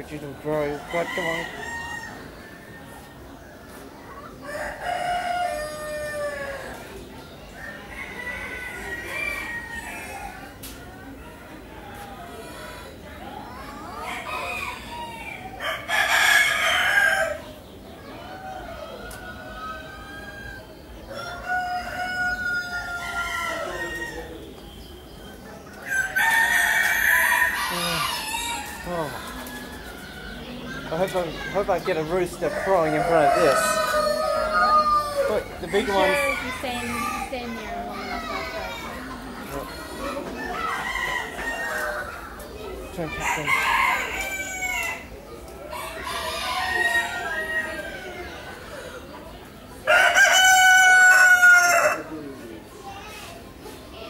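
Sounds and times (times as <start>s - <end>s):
rooster crowing: 32.4s - 37.2s, 43.2s - 45.1s, 45.7s - 48.2s, 49.9s - 52.1s.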